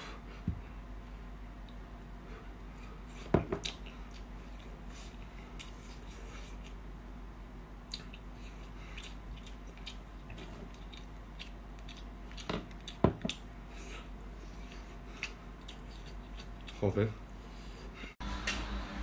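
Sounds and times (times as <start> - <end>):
low hum: 17.2 - 19.0.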